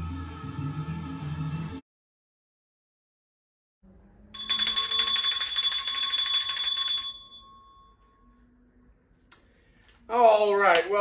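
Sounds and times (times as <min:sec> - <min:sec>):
bell ringing rapidly: 0:04.4 - 0:07.9.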